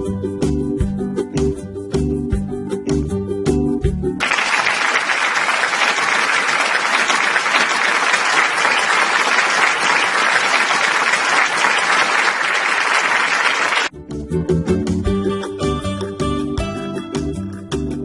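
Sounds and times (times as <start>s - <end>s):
audience applauding: 4.2s - 13.9s.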